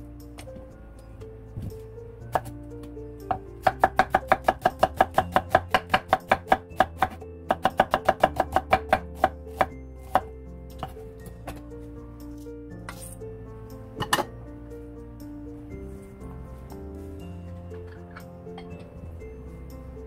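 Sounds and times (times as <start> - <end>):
knife chopping on wooden board: 3.3 - 10.2.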